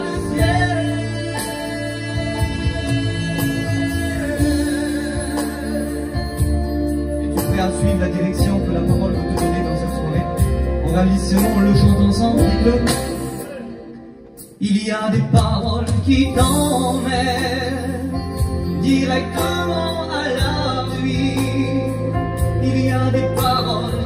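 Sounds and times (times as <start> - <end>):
person singing a hymn: 0.0 - 6.2
instrumental accompaniment with beat: 0.0 - 24.0.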